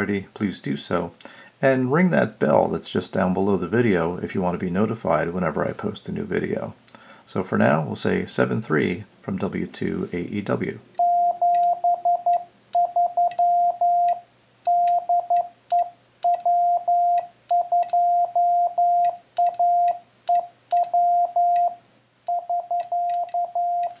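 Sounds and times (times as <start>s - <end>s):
morse code beeps: 11.0s - 24.0s.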